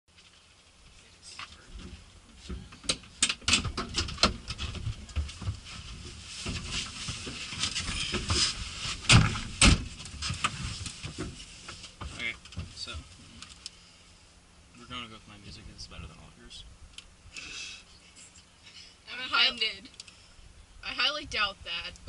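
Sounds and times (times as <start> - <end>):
people climbing into vehicle: 0.2 - 13.6
heavy thumps: 1.8 - 13.1.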